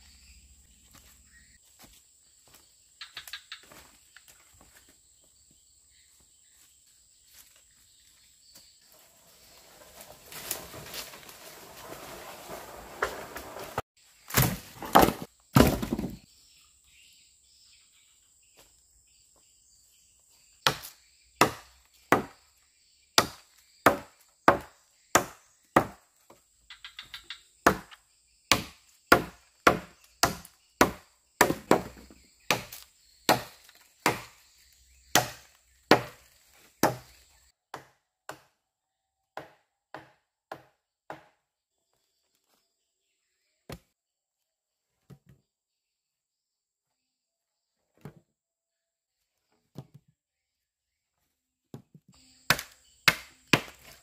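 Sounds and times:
blade chopping wood: 14.3s - 16.2s, 20.7s - 22.4s, 23.2s - 26.0s, 27.1s - 34.4s, 35.1s - 36.2s, 36.8s - 38.5s, 52.5s - 54.0s.

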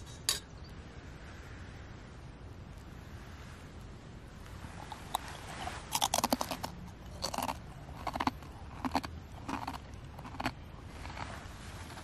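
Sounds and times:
person crunching a biscuit: 4.9s - 12.0s.

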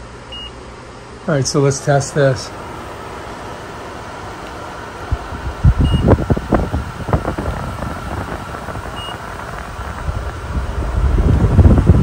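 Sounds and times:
air cooler fan running: 0.0s - 12.0s
thermometer short beeps: 0.3s - 0.5s, 5.8s - 6.1s, 9.0s - 9.2s
wind buffeting microphone: 5.1s - 12.0s.

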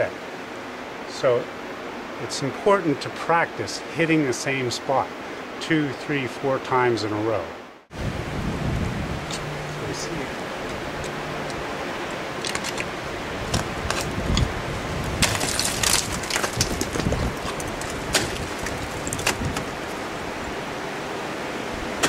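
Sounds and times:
steady hiss: 0.0s - 15.2s
ice axe striking ice: 12.4s - 12.9s, 15.1s - 20.0s.

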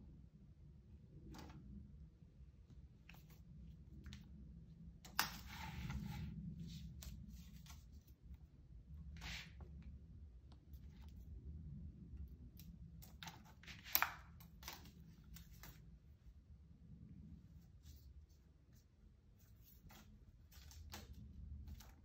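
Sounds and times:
claws scratching on floor: 5.2s - 8.3s, 9.1s - 9.7s.

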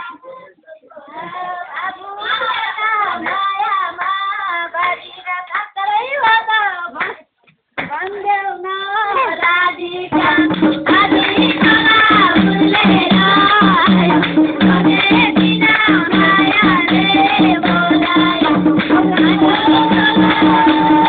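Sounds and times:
person singing folk song: 7.9s - 21.0s
steady accompaniment beat: 10.1s - 21.0s.

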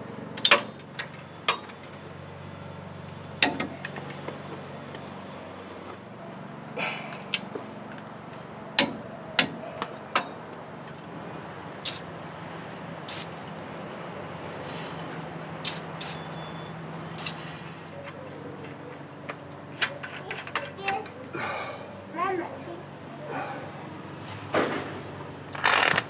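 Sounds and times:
metal tools clinking: 8.8s - 9.6s, 25.5s - 26.0s
aerosol spray can hissing: 13.1s - 13.3s.

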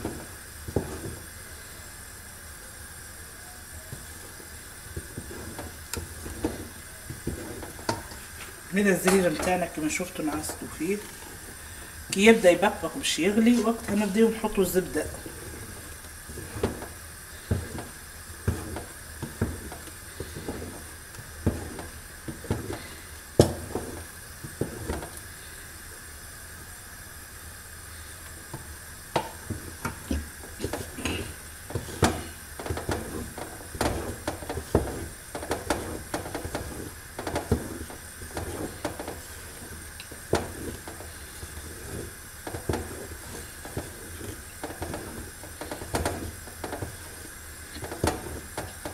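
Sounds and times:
faint steady hiss: 0.0s - 48.9s
spoon stirring thick paste: 5.0s - 12.8s, 13.4s - 20.9s, 21.5s - 25.0s, 29.2s - 48.8s.

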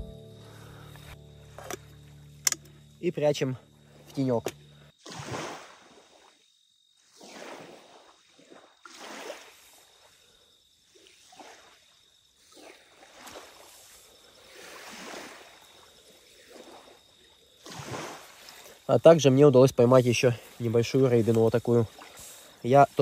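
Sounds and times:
water washing in swells: 5.0s - 23.0s.

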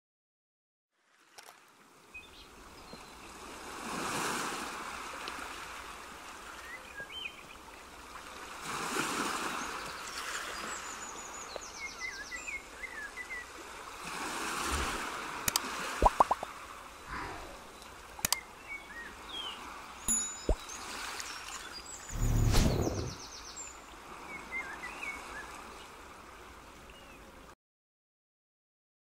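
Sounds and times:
waves washing in: 3.3s - 6.5s, 13.6s - 18.2s, 19.1s - 23.4s
birds chirping: 17.1s - 23.6s.

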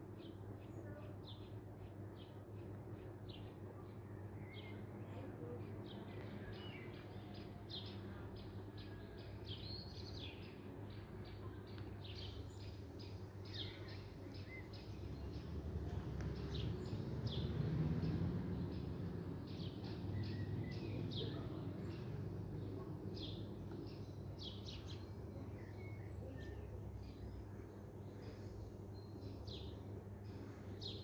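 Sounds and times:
low steady background rumble: 0.0s - 31.0s
small songbirds chirping: 0.0s - 31.0s.

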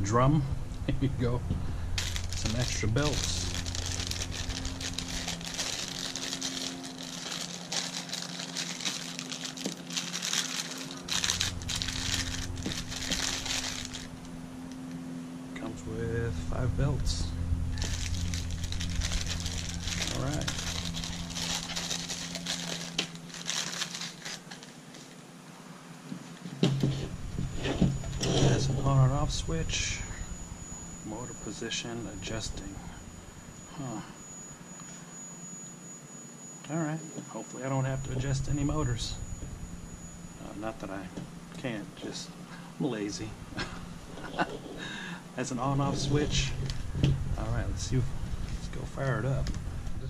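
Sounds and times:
steady low hum: 0.0s - 50.0s
plastic bag crinkling: 2.0s - 14.3s, 17.8s - 25.2s.

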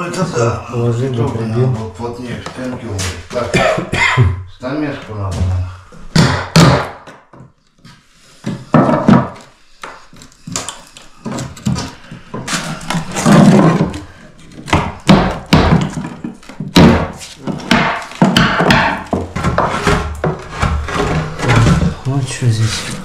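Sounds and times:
wooden floorboards thudding: 5.3s - 7.5s, 8.4s - 22.1s.

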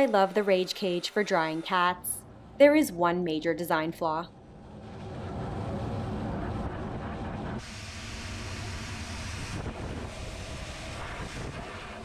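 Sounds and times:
dryer blowing air: 4.4s - 12.0s.

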